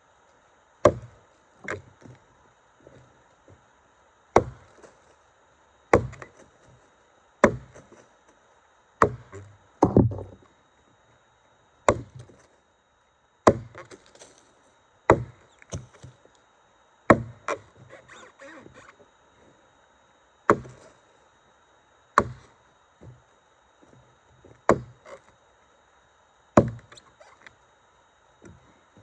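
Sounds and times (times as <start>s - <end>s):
axe chopping log: 0.8s - 2.2s, 4.3s - 4.9s, 5.9s - 6.4s, 7.4s - 8.0s, 9.0s - 10.4s, 11.9s - 12.3s, 13.4s - 14.0s, 15.1s - 16.2s, 17.1s - 17.7s, 20.5s - 20.8s, 22.2s - 23.2s, 24.6s - 25.2s, 26.6s - 27.0s.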